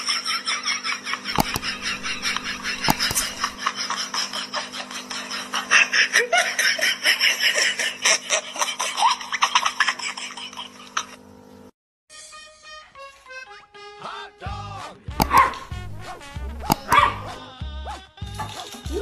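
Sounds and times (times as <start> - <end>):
people laughing hard: 0.0 - 11.2
steady low hum: 1.4 - 3.6, 15.1 - 17.4.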